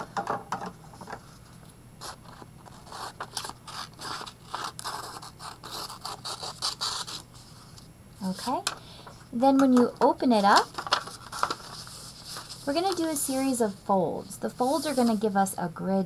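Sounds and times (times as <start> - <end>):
paper scraping and rustling: 1.0 - 7.8, 10.3 - 13.8, 14.6 - 15.2.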